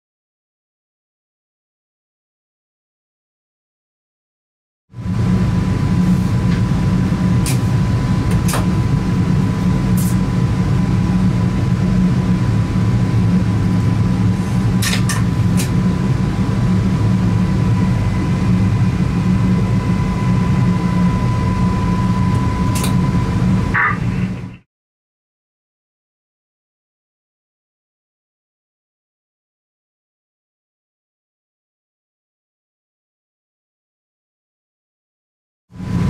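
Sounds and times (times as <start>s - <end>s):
train cab rumble: 5.0s - 19.1s, 20.8s - 24.6s
high whine: 5.0s - 24.7s, 35.8s - 36.0s.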